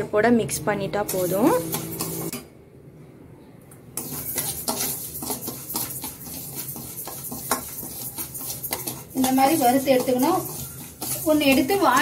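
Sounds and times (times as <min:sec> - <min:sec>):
metal spoon scraping pan: 0:01.0 - 0:02.4, 0:04.0 - 0:12.0.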